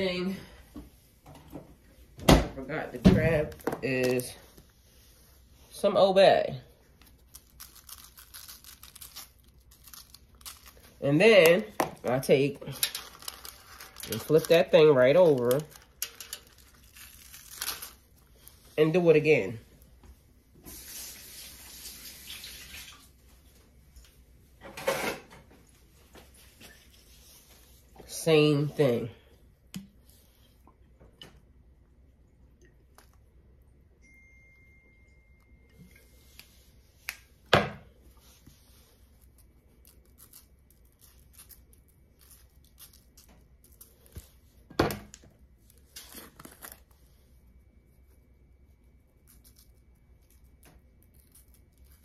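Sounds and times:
water running from faucet: 20.7 - 23.1.

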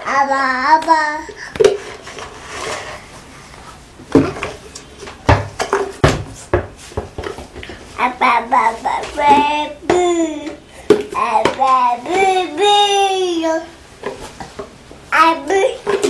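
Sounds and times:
toddler babbling: 0.0 - 1.5, 8.0 - 10.6, 11.2 - 13.7, 15.2 - 16.0
plastic jars knocking: 4.1 - 7.8, 9.0 - 12.6.

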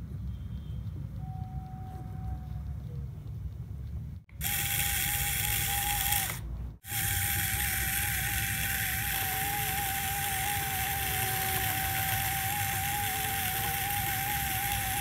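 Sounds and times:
small electric motor whine: 4.4 - 15.0.

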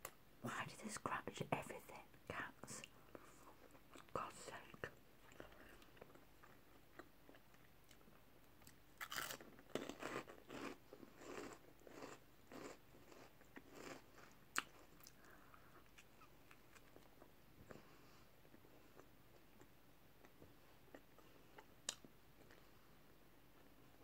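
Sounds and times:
crunchy snack chewing: 5.3 - 17.2.

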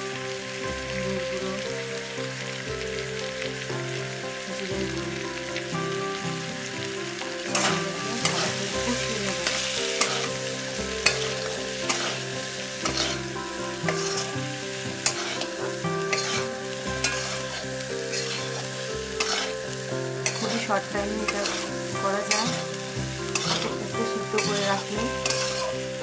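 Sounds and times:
food sizzling in oil: 0.0 - 26.0
metal spatula scraping a pan: 7.5 - 26.0.

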